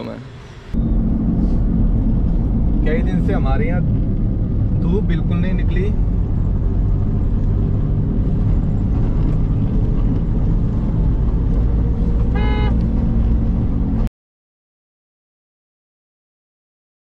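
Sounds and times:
car engine and tyres rumbling: 0.0 - 14.1
car horn honk: 12.3 - 12.8.

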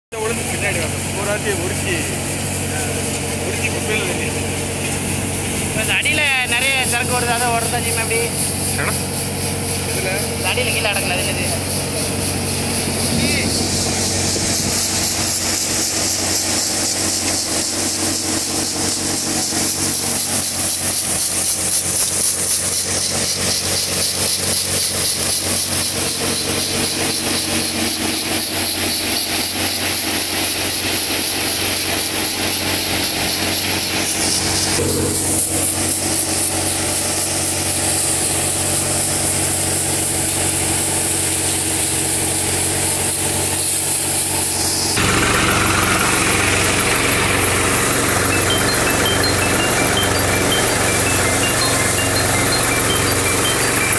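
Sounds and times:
tractor engine running thresher: 0.2 - 53.9
hiss of chaff blowing: 11.4 - 34.8.

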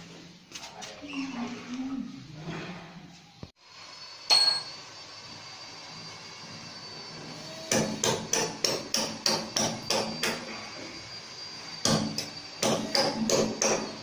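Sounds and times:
hammer striking: 7.7 - 10.5, 11.8 - 13.9.

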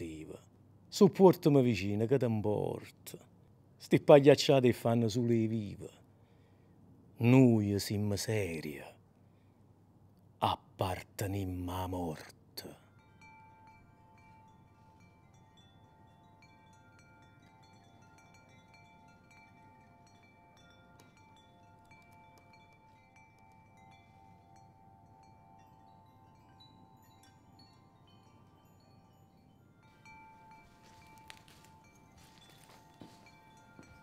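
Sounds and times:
soft chimes ringing: 11.3 - 34.0
tinkling notes: 11.7 - 34.0.

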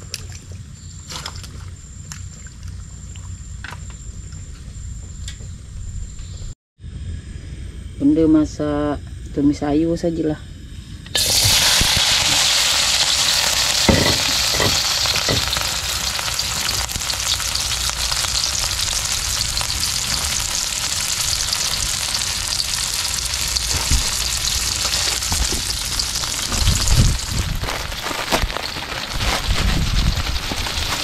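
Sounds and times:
vegetables sizzling in oil: 11.2 - 31.0
utensil knocking against pan: 13.9 - 15.5.

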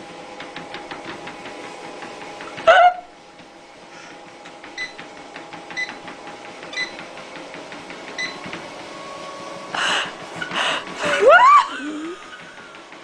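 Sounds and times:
treadmill motor hum: 0.0 - 13.0
treadmill light click: 4.4 - 8.8.

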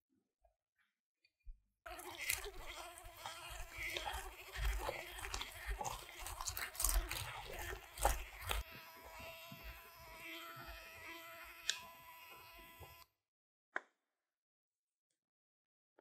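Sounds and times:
electric hand mixer running: 1.9 - 13.0.

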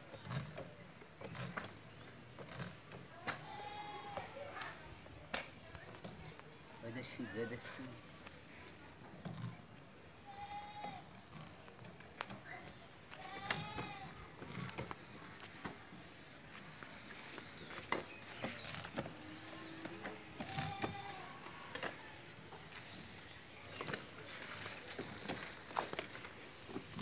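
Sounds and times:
goats bleating: 3.4 - 4.4, 10.2 - 11.1, 13.1 - 14.7, 19.1 - 22.2
sprayer nozzle hissing: 12.2 - 27.0.

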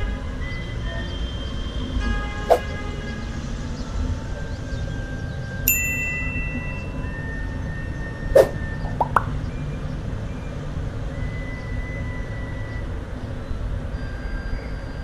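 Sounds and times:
traffic rumble: 1.7 - 11.1
short rising chirps: 8.4 - 9.2.

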